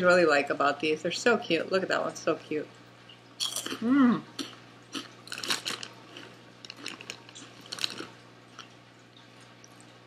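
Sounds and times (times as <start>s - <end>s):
person chewing crunchy snacks: 3.4s - 8.8s.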